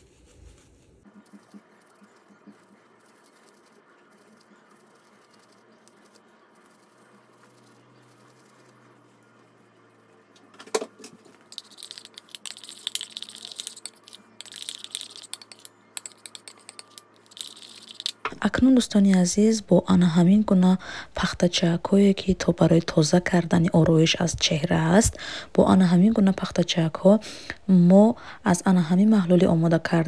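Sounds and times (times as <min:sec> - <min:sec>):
spoon clinking and scraping in bowl: 0:11.6 - 0:18.2.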